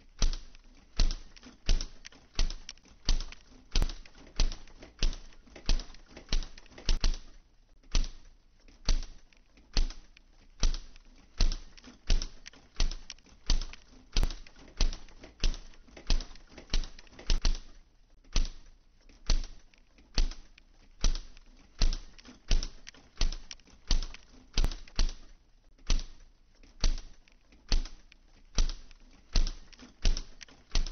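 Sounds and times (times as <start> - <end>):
rhythmic clacking knocks: 0.0 - 7.3, 8.8 - 17.7, 28.6 - 30.9.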